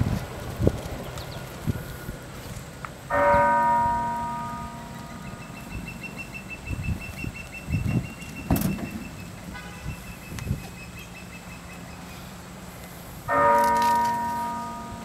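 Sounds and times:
church bell tolling: 0:03.1 - 0:06.0, 0:13.3 - 0:15.0.

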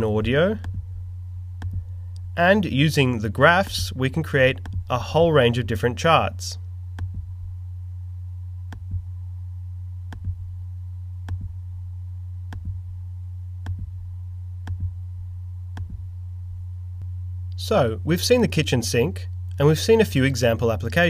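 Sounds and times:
steady low hum: 0:00.0 - 0:21.0
computer mouse clicks: 0:01.6 - 0:02.2.

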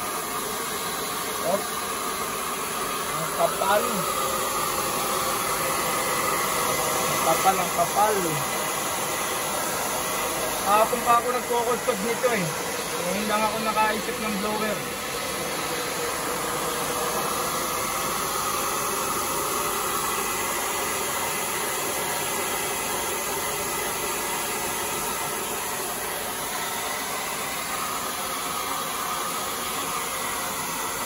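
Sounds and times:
hair dryer running: 0:00.0 - 0:31.0.

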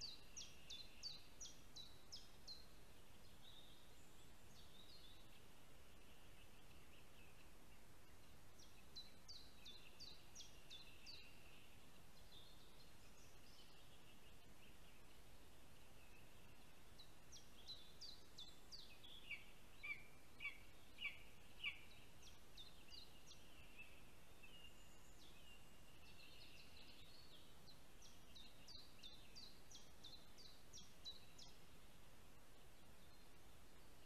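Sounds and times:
songbird singing: 0:00.0 - 0:34.0.

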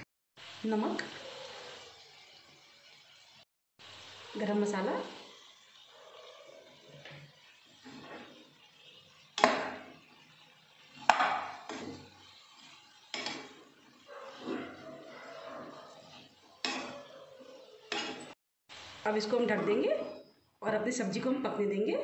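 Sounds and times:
vegetables scraping and rustling: 0:10.9 - 0:18.4
spoon knocking against pan: 0:11.1 - 0:12.0, 0:16.6 - 0:17.1.

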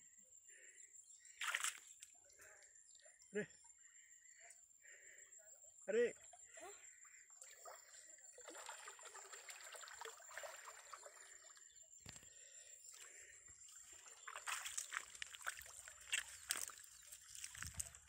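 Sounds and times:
river water sloshing and trickling: 0:01.2 - 0:02.3, 0:06.1 - 0:18.0
sharp water splashes: 0:01.4 - 0:01.9, 0:07.4 - 0:11.4, 0:13.7 - 0:17.9.

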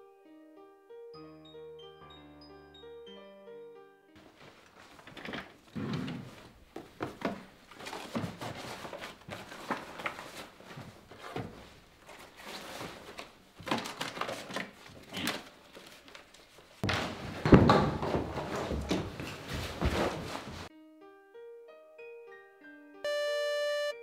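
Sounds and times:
rummaging through papers: 0:04.2 - 0:20.7
door banging open: 0:16.8 - 0:19.2.

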